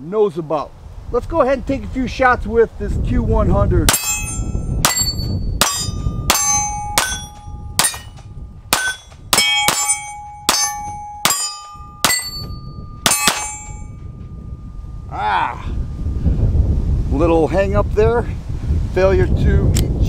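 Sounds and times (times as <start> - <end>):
steel plate target ringing: 3.9 - 15.2.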